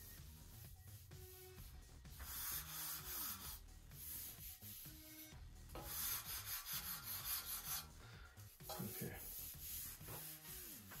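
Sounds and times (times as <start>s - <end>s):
sanding block on balsa wood: 2.1s - 8.0s, 8.8s - 11.0s.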